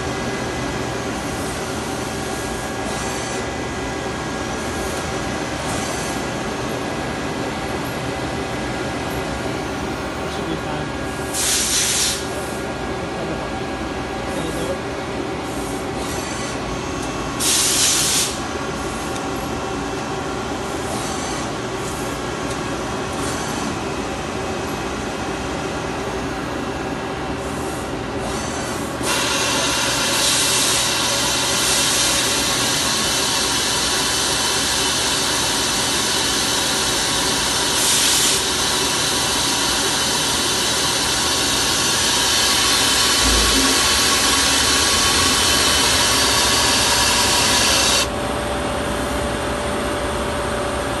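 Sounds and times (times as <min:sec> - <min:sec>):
lathe humming: 0:38.7 - 0:48.1.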